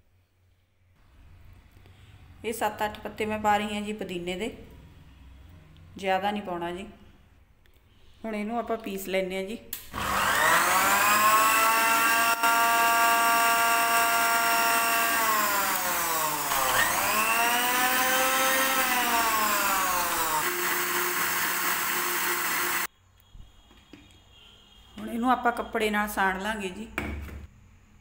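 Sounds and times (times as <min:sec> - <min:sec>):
mixer grinder motor whine: 0:09.9 - 0:22.9.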